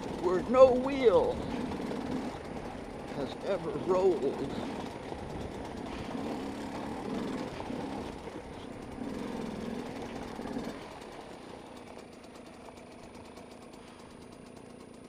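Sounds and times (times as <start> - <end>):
dirt bike engine running: 0.0 - 15.0.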